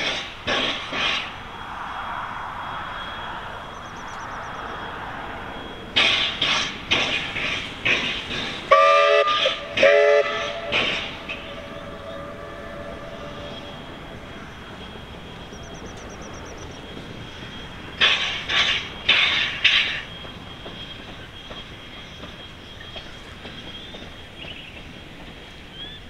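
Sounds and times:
steam locomotive chuffing: 0.0 - 1.7, 2.9 - 26.0
steam hiss: 0.0 - 25.7
steam whistle blasts: 8.7 - 14.1.

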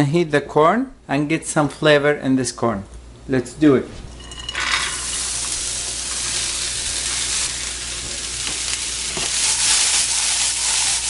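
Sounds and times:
corn sizzling in a frying pan: 4.3 - 11.0.

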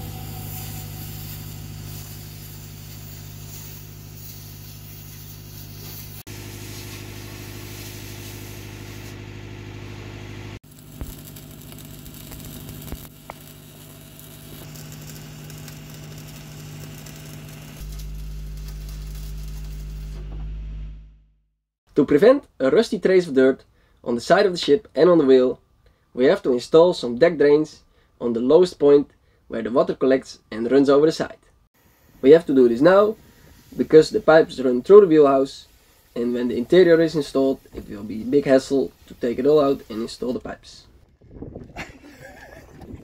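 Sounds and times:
cutting torch hissing: 0.0 - 9.4, 10.6 - 20.2, 31.9 - 40.4
sharp cracks: 10.7 - 20.0.

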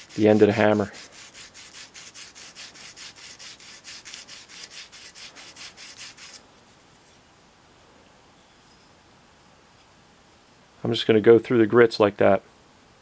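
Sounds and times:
sandpaper rasping on metal: 0.0 - 6.4.

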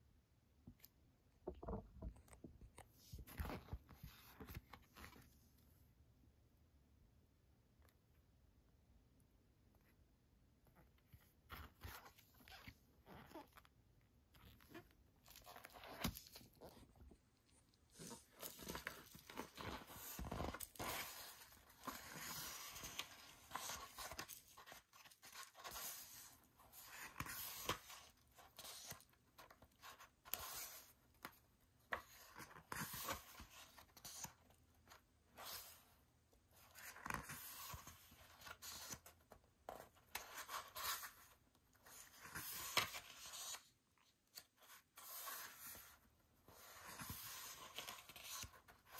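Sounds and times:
pages turning: 1.6 - 5.5, 17.9 - 35.9, 36.6 - 43.7, 44.3 - 48.9.

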